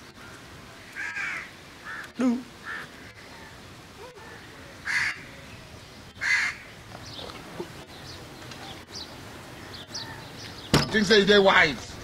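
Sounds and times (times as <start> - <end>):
small birds chirping: 0.0 - 12.0
crow cawing: 0.2 - 3.5, 4.3 - 5.3, 6.2 - 6.7.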